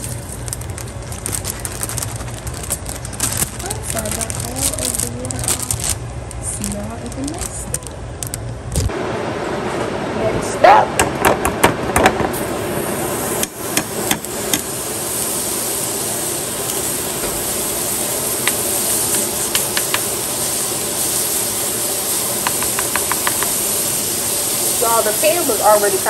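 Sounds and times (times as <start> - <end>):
butter sizzling in a pan: 12.4 - 26.0.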